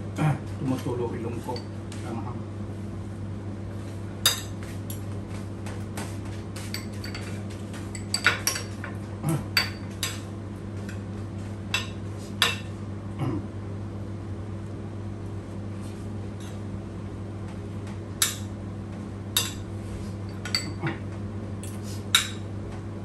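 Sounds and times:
steady low hum: 0:00.0 - 0:23.0
spoon and fork clinking on a plate: 0:20.3 - 0:20.8.

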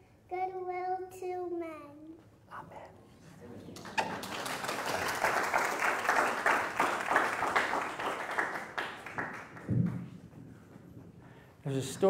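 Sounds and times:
congregation applauding: 0:03.7 - 0:10.2.

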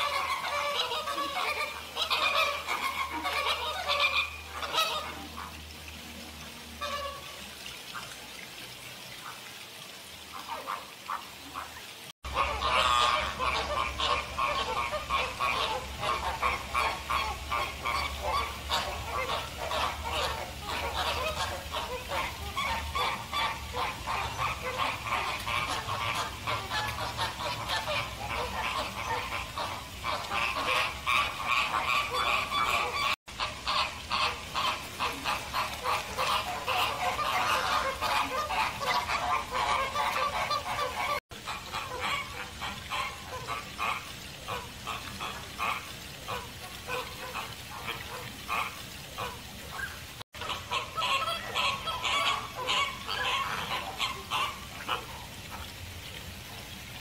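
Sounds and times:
flamingos calling: 0:00.0 - 0:05.6, 0:06.8 - 0:08.2, 0:10.3 - 0:55.7.

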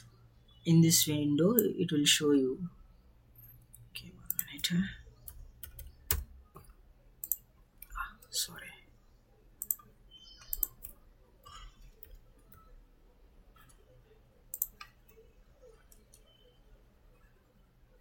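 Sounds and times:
faint room noise: 0:00.0 - 0:18.0
computer mouse clicking: 0:03.4 - 0:08.0, 0:09.6 - 0:12.7, 0:14.5 - 0:16.4.

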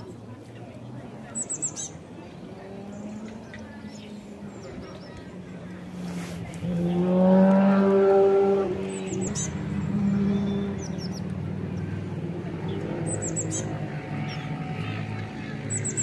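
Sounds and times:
vehicle engine humming: 0:00.0 - 0:16.0
small birds chirping: 0:00.5 - 0:05.9, 0:08.8 - 0:12.0, 0:12.6 - 0:16.0.

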